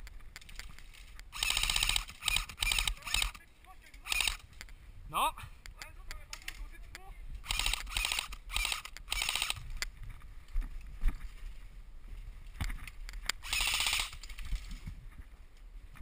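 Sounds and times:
airsoft gun firing bursts: 0:01.3 - 0:03.4, 0:07.4 - 0:09.6, 0:13.4 - 0:14.2.

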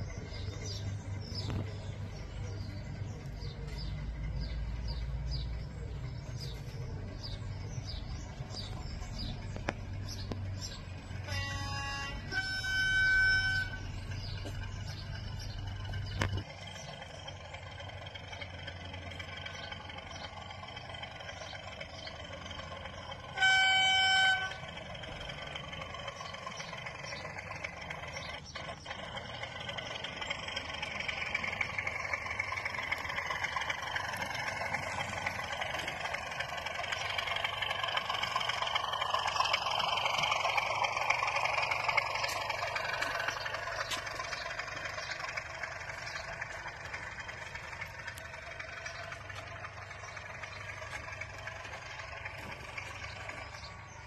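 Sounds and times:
model train diesel engine sound: 0:00.0 - 0:54.0
wheels on rails: 0:00.0 - 0:54.0
train horn blast: 0:11.2 - 0:14.1, 0:23.2 - 0:24.8.

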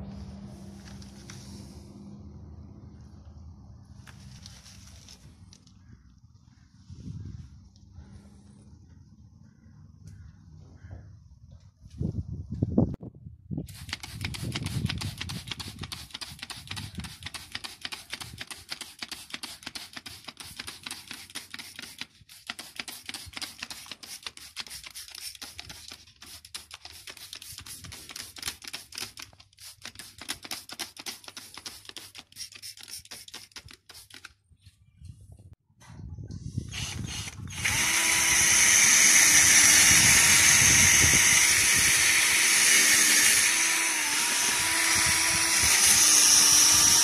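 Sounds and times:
spray jet crackling on wheel: 0:13.7 - 0:34.3.

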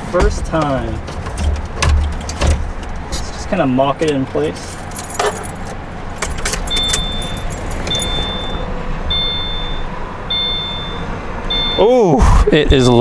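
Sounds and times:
car keys jingling: 0:00.0 - 0:11.8
car warning chime beeping: 0:06.1 - 0:12.0.

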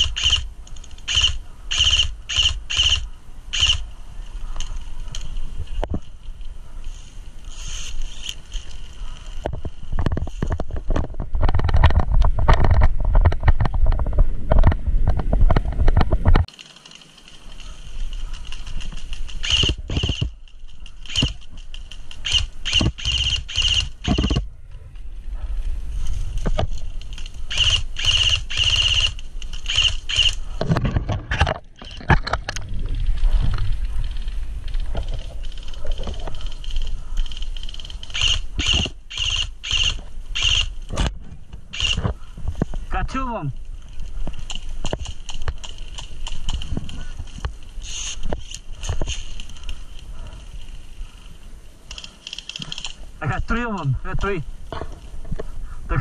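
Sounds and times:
branches scraping and snapping: 0:00.0 - 0:14.1, 0:15.7 - 0:55.8
microphone handling rumble: 0:09.4 - 0:16.5, 0:30.4 - 0:37.2
rapid rustling: 0:15.2 - 0:55.8.

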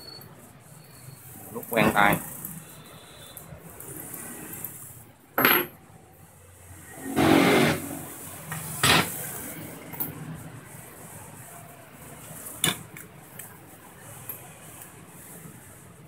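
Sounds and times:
spanner clattering on table: 0:05.4 - 0:05.7.

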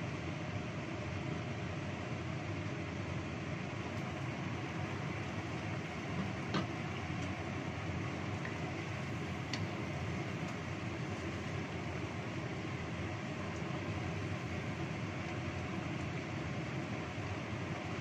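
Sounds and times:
stew simmering: 0:00.0 - 0:18.0
gas burner rushing: 0:03.8 - 0:18.0.

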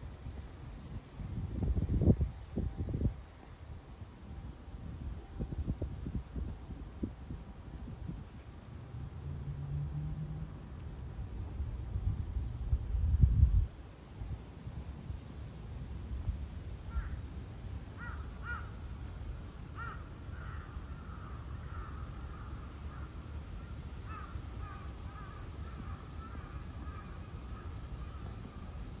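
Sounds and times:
crows cawing: 0:16.9 - 0:17.2, 0:18.0 - 0:18.8, 0:19.8 - 0:23.2, 0:24.0 - 0:28.3.

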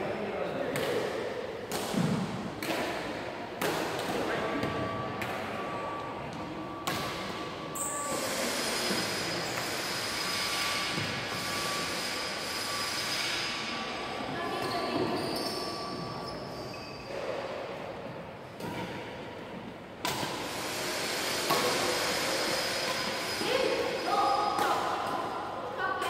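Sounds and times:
badminton rackets hitting shuttlecock: 0:00.7 - 0:05.4, 0:06.8 - 0:07.4, 0:20.0 - 0:20.5, 0:21.5 - 0:21.9, 0:24.5 - 0:25.4.

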